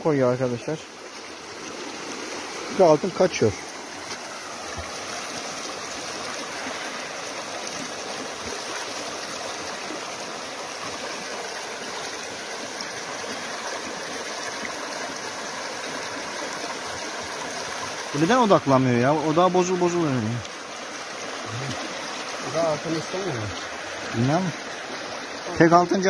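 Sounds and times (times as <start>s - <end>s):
creek water flowing over stones: 0.0s - 26.0s
water swishing in a tub: 0.6s - 25.9s.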